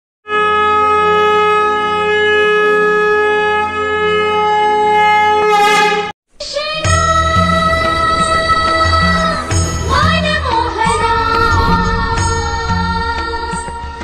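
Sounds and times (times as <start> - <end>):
conch shell blown: 0.3 - 6.1.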